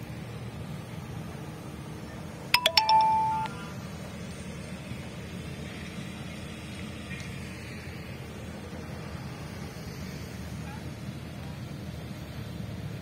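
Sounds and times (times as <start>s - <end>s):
chime strikes: 2.6s - 3.6s.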